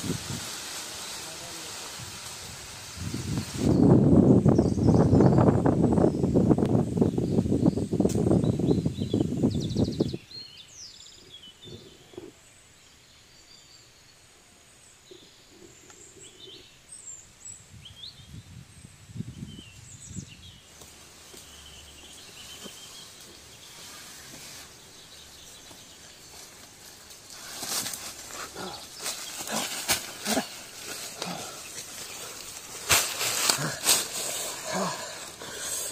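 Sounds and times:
dry leaves and twigs crunching: 0.0 - 3.7, 20.7 - 35.9
loud rough rustling: 22.3 - 35.9.

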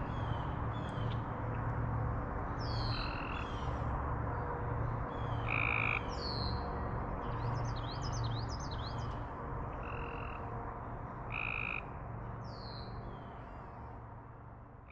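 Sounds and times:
frogs calling: 5.5 - 6.0, 11.3 - 11.8.

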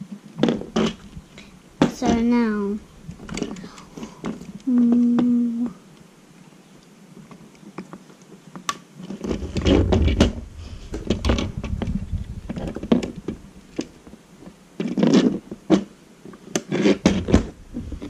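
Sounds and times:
low bumps: 9.3 - 15.7.

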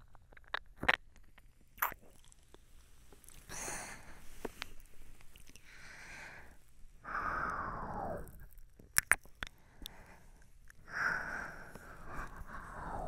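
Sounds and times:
wet mouth clicks: 1.8 - 2.5, 4.7 - 5.7, 7.5 - 10.1
breathy mouth swishes: 7.1 - 9.2, 11.0 - 13.0.

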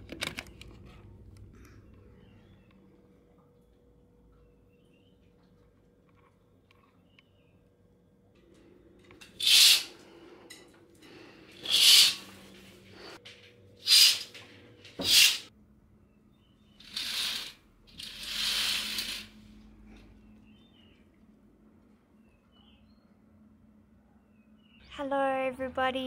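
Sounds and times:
curtains swishing on rails: 9.3 - 10.0, 11.6 - 13.2, 13.8 - 15.5, 16.8 - 19.4.

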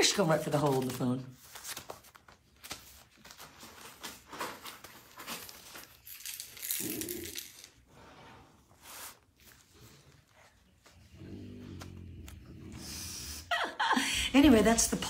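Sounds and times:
newspaper rustling and crinkling: 0.0 - 6.6.

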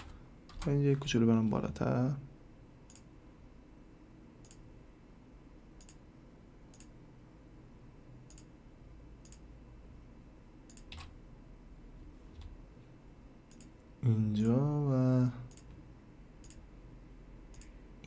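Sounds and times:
computer mouse clicks: 2.9 - 3.1, 4.4 - 4.6, 5.8 - 6.0, 6.7 - 7.0, 8.3 - 8.5, 9.2 - 9.5, 10.7 - 11.1, 13.5 - 13.8, 15.5 - 15.8, 16.4 - 16.6, 17.5 - 17.8.

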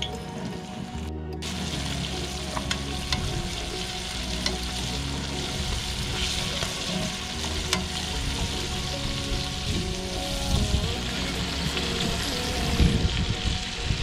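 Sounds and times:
fish sizzling in oil: 1.4 - 14.0.

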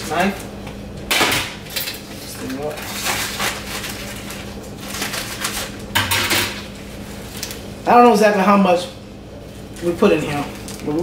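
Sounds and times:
steady low hum: 0.0 - 11.0
plastic bag crinkling: 9.6 - 11.0.

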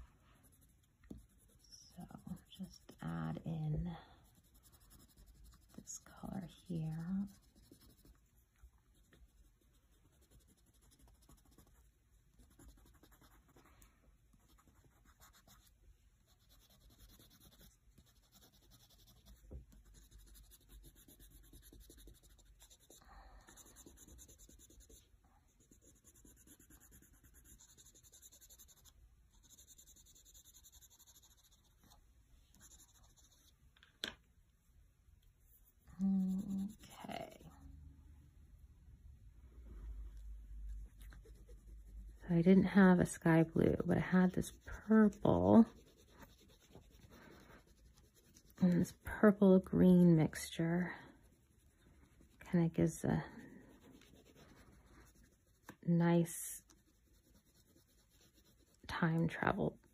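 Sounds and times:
crayon scratching on paper: 0.0 - 13.6, 14.3 - 33.6, 35.5 - 37.6, 40.2 - 50.6, 53.6 - 59.8.

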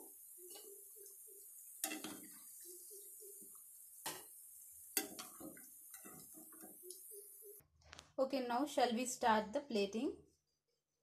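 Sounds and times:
food sizzling in oil: 0.0 - 7.6.

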